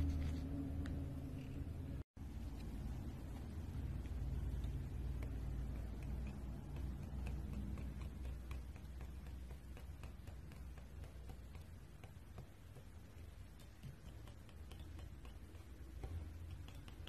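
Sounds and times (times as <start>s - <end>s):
wire whisk ticking against bowl: 3.6s - 17.0s.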